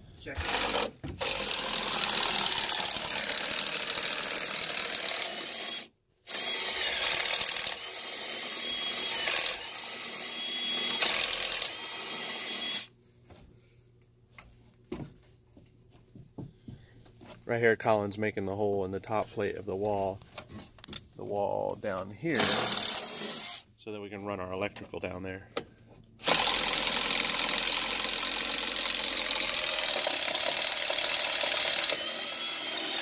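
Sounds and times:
power drill boring wood: 0.3 - 12.9, 22.3 - 23.6, 26.2 - 33.0.

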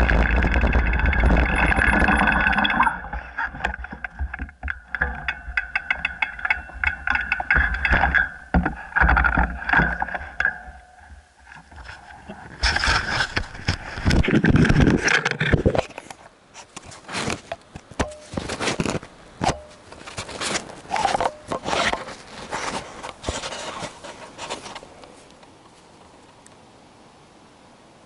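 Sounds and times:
clicks and knocks: 0.0 - 11.9
camera handling scraping and rubbing: 11.5 - 17.6, 18.2 - 19.1, 19.8 - 25.0.

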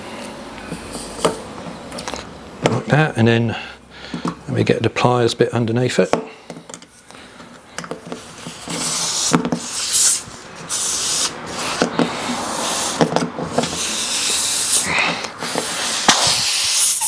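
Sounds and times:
air hissing from tyre: 0.6 - 1.4, 8.2 - 17.0.

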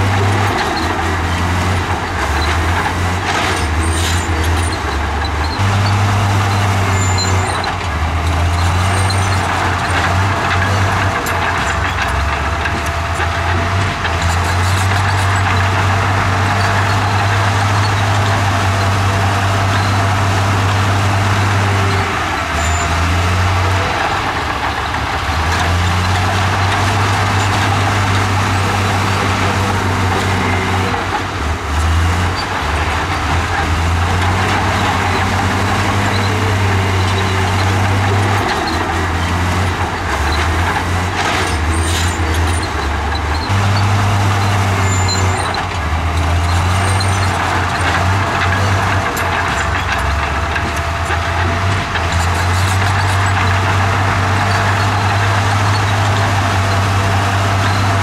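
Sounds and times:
bulldozer diesel engine working: 0.0 - 58.0.

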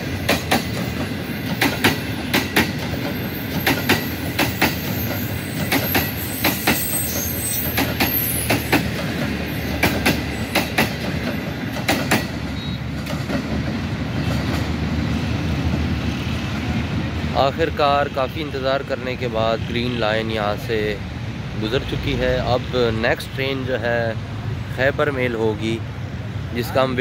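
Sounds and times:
wheels clicking over rail joints: 0.0 - 16.0
train coaches rumbling past: 0.0 - 27.0.

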